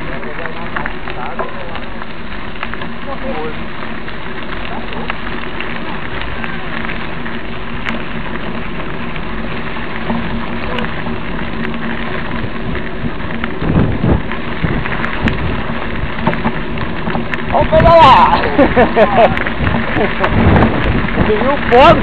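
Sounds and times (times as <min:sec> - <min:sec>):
dry grass rustling against camera: 0:00.0 - 0:22.0
low bumps: 0:00.0 - 0:22.0.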